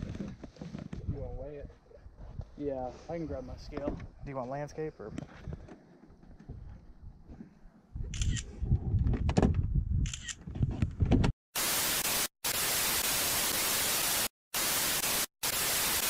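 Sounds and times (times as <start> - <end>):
short hissing bursts: 11.6 - 16.0
white noise static hiss: 11.6 - 16.0.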